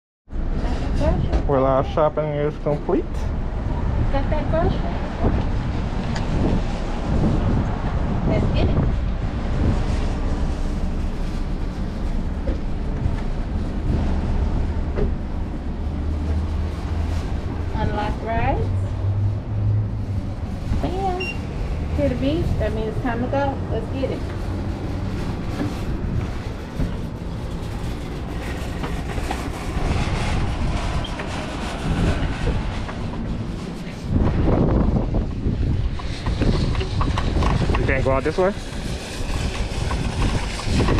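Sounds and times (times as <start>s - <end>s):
wind buffeting microphone: 0.3s - 40.9s
scooter wheels rumbling on concrete: 20.0s - 40.9s.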